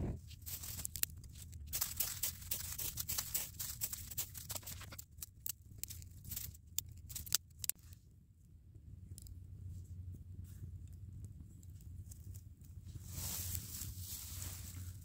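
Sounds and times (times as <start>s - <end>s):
tinder crackling as it burns: 0.2s - 7.8s, 11.6s - 15.0s.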